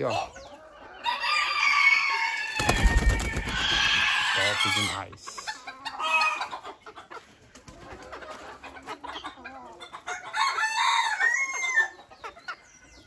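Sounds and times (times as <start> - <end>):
chickens clucking quietly: 0.0 - 13.0
rooster crowing: 1.0 - 5.0, 10.2 - 11.9.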